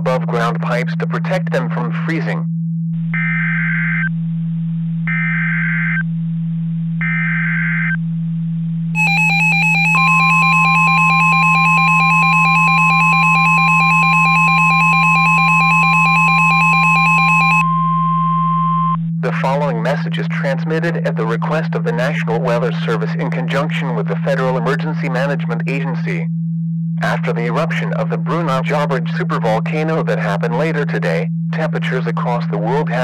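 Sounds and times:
low steady hum: 0.0s - 5.4s, 8.0s - 33.0s
steady high alarm tone: 9.0s - 19.0s
chirping digital tones: 9.0s - 26.2s.

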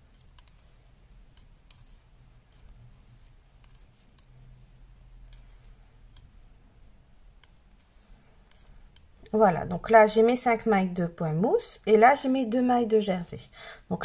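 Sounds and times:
knitting needles clicking: 0.0s - 9.8s.

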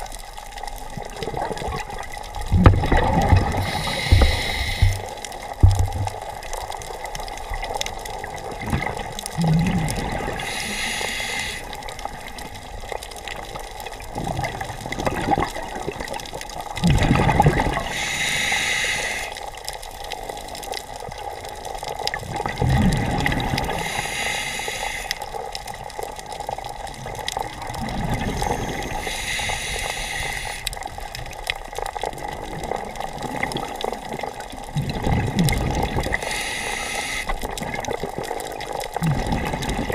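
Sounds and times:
exhaled bubbles rushing: 0.8s - 10.8s, 13.9s - 18.1s, 22.0s - 23.8s, 26.4s - 29.1s, 31.8s - 36.3s, 37.4s - 39.9s
regulator hissing inhale: 3.5s - 5.2s, 10.4s - 11.9s, 17.8s - 19.4s, 23.7s - 25.3s, 28.4s - 30.8s, 36.1s - 37.4s.

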